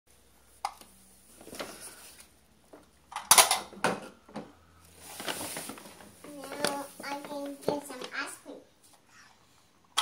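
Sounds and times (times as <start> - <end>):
plastic toy dishes clattering: 3.1 - 4.5.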